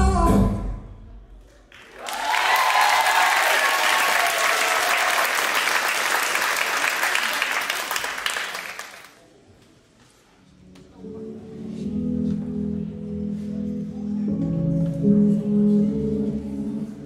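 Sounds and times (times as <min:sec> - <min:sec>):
audience applause and cheering: 0:01.6 - 0:09.2.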